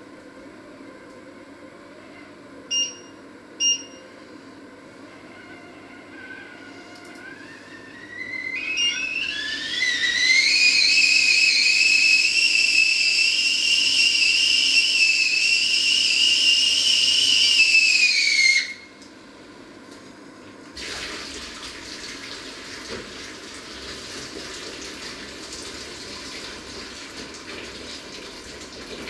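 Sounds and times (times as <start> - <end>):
kettle whistling: 7.2 - 19.0.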